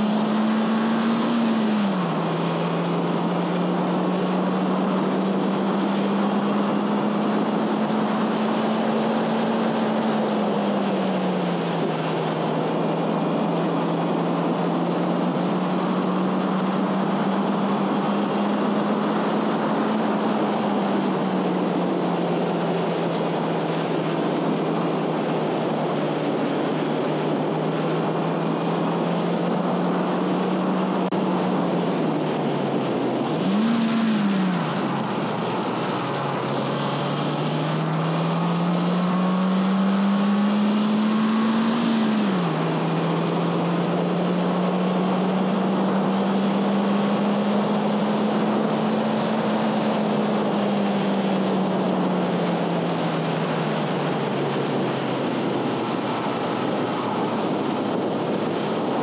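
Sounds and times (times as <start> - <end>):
car engine under way: 0.0 - 59.0
wind and road noise: 0.0 - 59.0.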